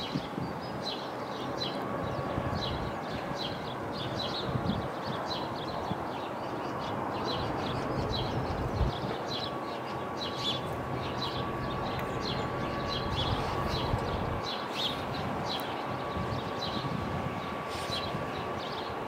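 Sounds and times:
small birds chirping: 0.0s - 19.0s
steady low rumble: 10.5s - 18.5s.

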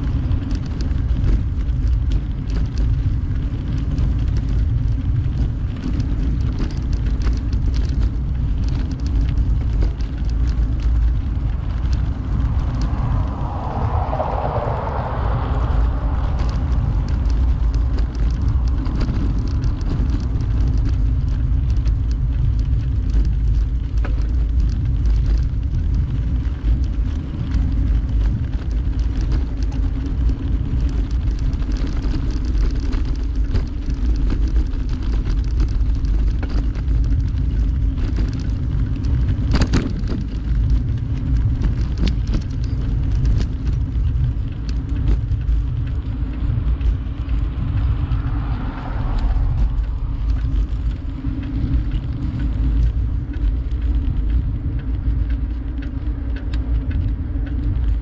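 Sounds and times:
bicycle road noise: 0.0s - 58.0s
wind on microphone: 0.0s - 58.0s.

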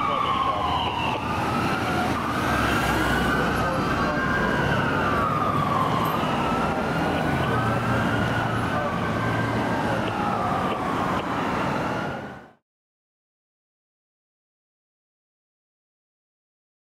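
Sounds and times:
ambulance sirens wailing: 0.0s - 12.6s
traffic noise: 0.0s - 12.6s.

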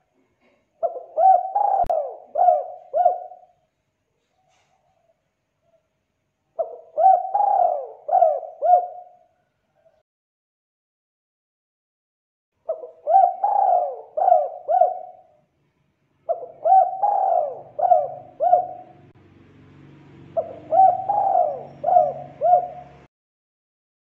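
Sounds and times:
dove cooing: 0.8s - 3.6s, 6.6s - 10.0s, 12.6s - 15.4s, 16.3s - 19.1s, 20.3s - 23.1s.

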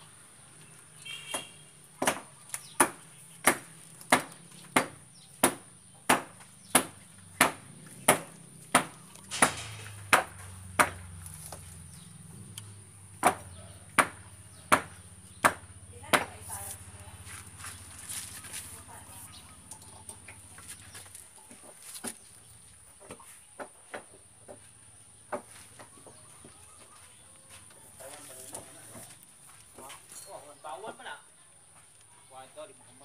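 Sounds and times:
rhythmic striking blows: 4.8s - 11.0s.

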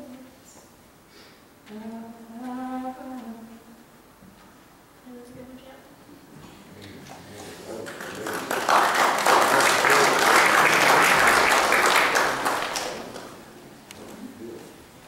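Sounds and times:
congregation applauding: 7.5s - 13.5s.

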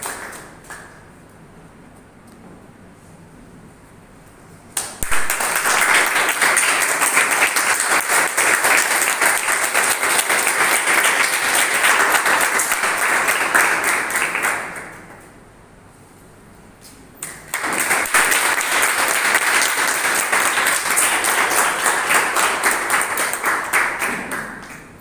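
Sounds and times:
audience clapping: 0.0s - 1.3s, 4.7s - 15.4s, 17.2s - 25.0s.

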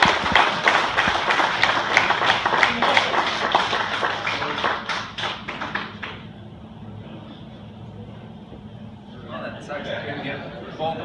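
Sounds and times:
audience clapping: 0.0s - 6.4s.

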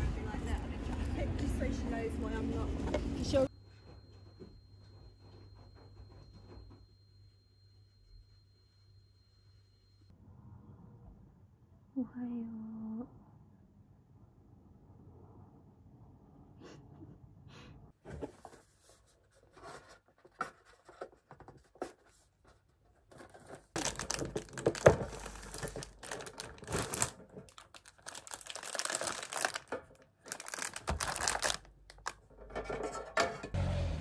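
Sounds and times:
rustling and tearing by hand: 23.8s - 32.1s.

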